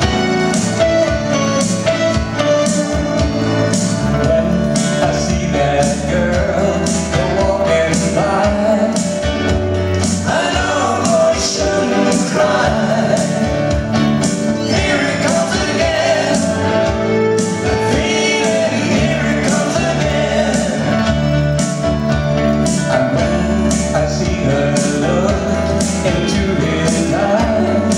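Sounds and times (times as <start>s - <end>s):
bass guitar: 0.0s - 27.9s
electric guitar: 0.0s - 27.9s
keyboards: 0.0s - 27.9s
man singing: 3.8s - 21.7s, 22.5s - 27.9s.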